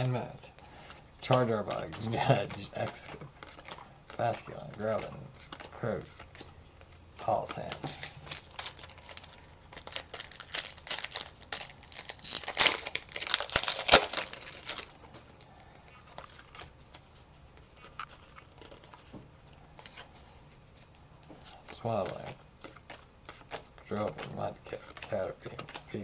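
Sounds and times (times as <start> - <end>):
cards being handled: 0.0 - 26.0
foil wrapper crinkling and tearing: 7.5 - 16.6.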